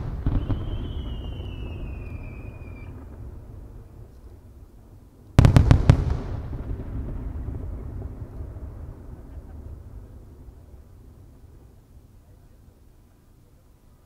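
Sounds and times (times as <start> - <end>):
rumbling echo: 5.4 - 11.7.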